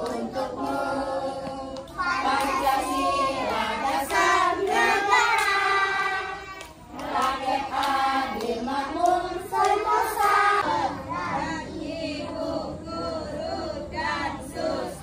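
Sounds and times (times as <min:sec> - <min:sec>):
young children singing: 0:00.0 - 0:15.0.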